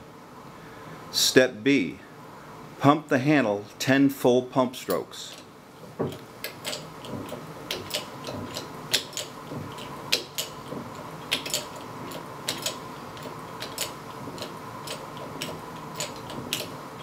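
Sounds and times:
jack pump handle clicking: 4.9 - 17.0.

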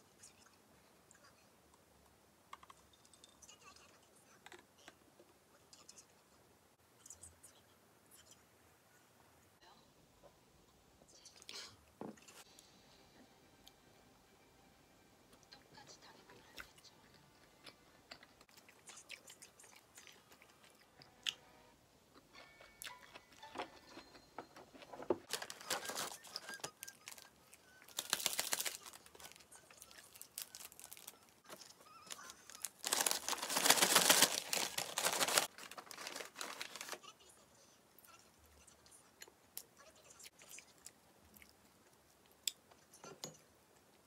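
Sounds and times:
quiet chewing: 15.3 - 21.4, 38.0 - 44.0
paper bag rustling: 24.8 - 27.3, 27.9 - 37.0.

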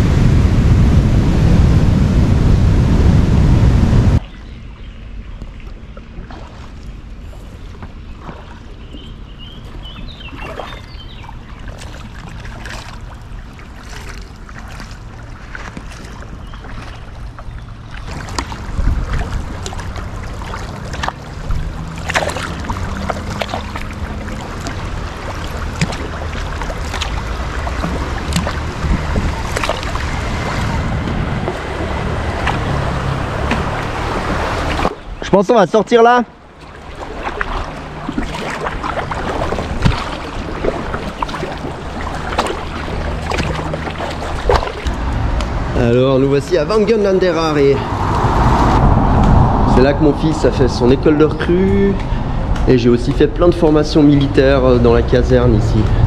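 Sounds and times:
wind rumbling on microphone: 0.0 - 35.4, 36.3 - 56.0
flowing river water: 4.2 - 56.0
paddle strokes splashing: 5.3 - 35.3, 35.9 - 49.3.

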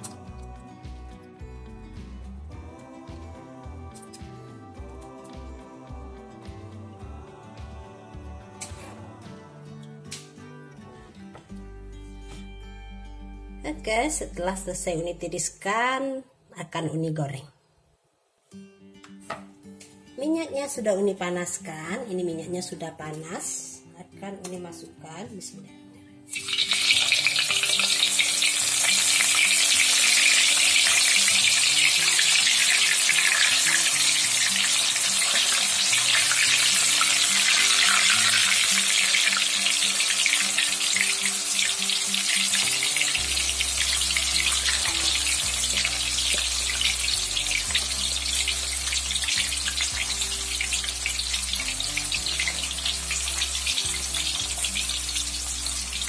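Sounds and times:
background music: 0.0 - 17.5, 18.5 - 56.0
food sizzling in hot oil: 26.3 - 56.0.

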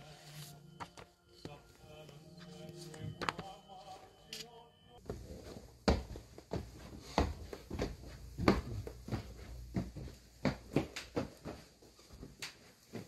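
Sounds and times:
footsteps on tiled stairs: 5.0 - 13.0.

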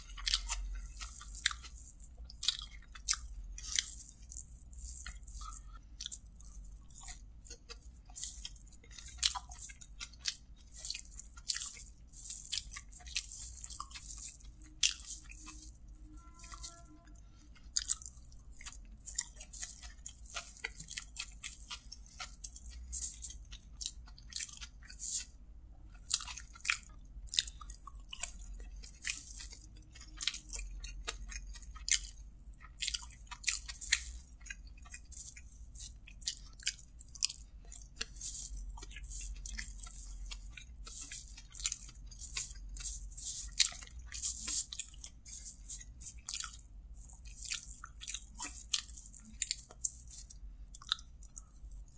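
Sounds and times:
man chewing: 0.0 - 51.9.

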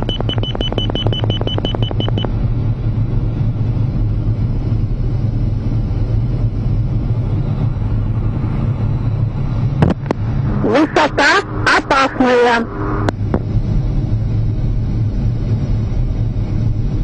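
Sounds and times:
rapid high warning beeps: 0.0 - 2.3
jet engine and airflow rumble: 0.0 - 17.0.

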